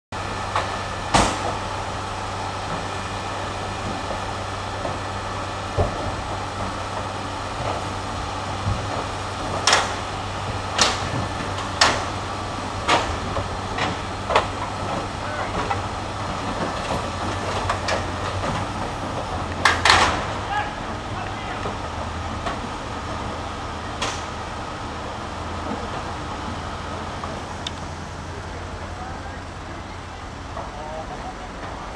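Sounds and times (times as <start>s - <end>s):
crane engine humming: 0.1s - 31.9s.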